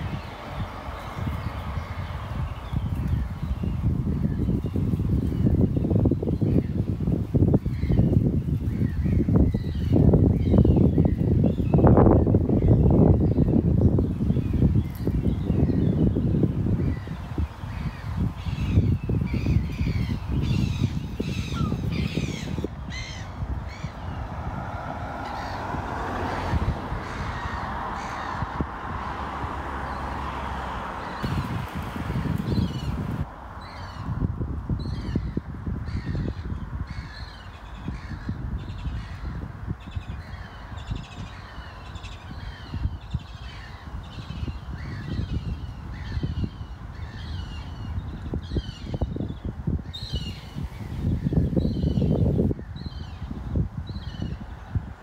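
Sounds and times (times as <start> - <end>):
bird calling with downward calls: 17.8 - 24.2.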